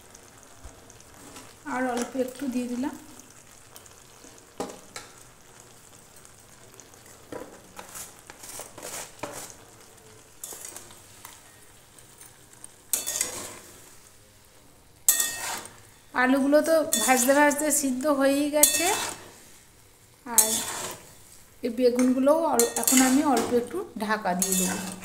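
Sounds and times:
curry sizzling in a pan: 0.0s - 25.0s
spatula scraping a pan: 7.3s - 9.8s, 10.4s - 11.4s, 12.9s - 14.0s, 15.1s - 15.9s, 16.9s - 17.6s, 18.6s - 19.7s, 20.3s - 23.6s, 24.4s - 25.0s.

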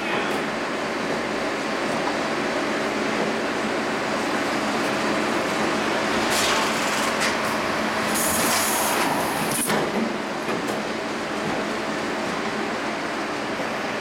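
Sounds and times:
steady machine noise: 3.6s - 10.4s.

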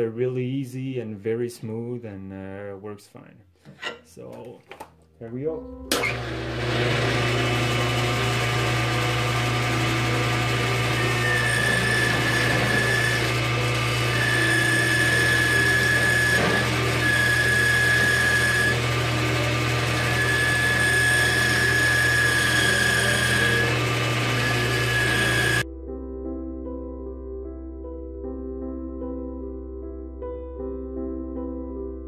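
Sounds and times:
high thin whine of cutting: 6.0s - 25.6s
lathe motor hum: 6.0s - 25.6s.

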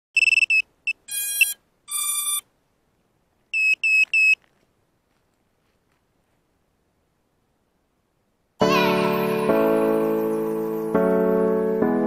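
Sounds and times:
camera beeps: 0.2s - 2.4s, 3.6s - 4.4s.

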